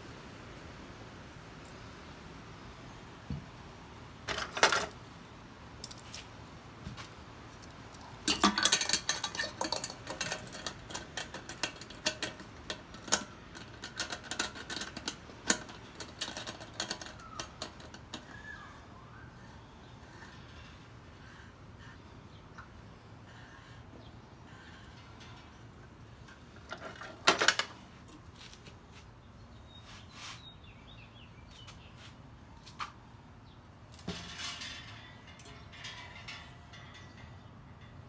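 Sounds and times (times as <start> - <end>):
metal parts clanking and clinking: 4.2 - 5.0, 7.6 - 18.6, 22.5 - 28.3, 33.9 - 38.0.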